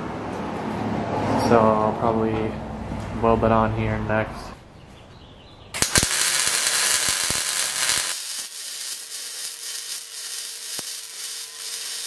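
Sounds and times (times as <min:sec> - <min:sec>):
welder arc crackling: 0:05.8 - 0:12.0.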